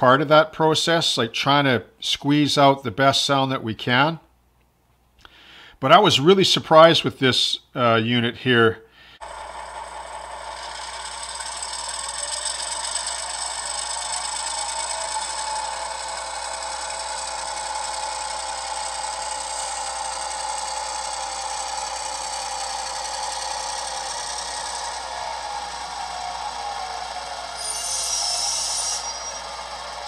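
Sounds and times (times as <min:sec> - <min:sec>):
model diesel engine sound: 0:09.2 - 0:30.0.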